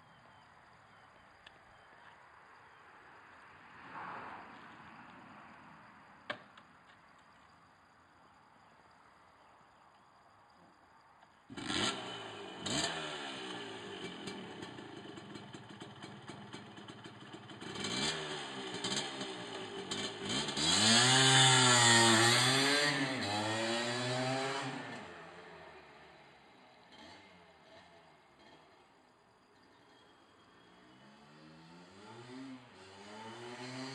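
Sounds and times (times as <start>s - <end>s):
two-stroke motorcycle engine revving: 11.5s - 26.0s, 26.8s - 28.8s, 31.0s - 33.9s.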